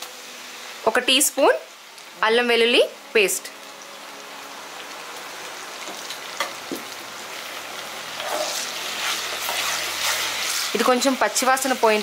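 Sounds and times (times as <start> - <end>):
hot oil sizzling: 0.0 - 12.0
spoon stirring: 8.2 - 10.7.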